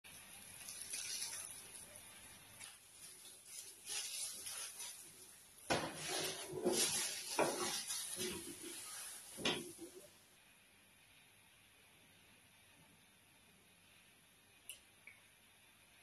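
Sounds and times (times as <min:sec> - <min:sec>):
plastic bag crinkling: 0:00.2 - 0:10.1.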